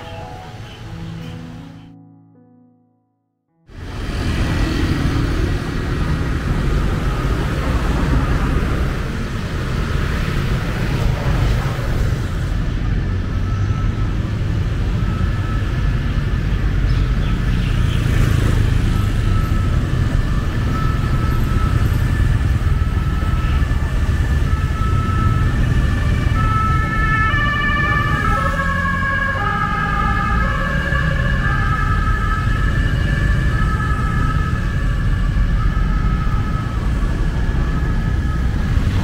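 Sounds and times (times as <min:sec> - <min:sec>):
street traffic rumble: 0:00.0 - 0:02.0, 0:03.6 - 0:39.0
ambulance siren: 0:12.6 - 0:39.0.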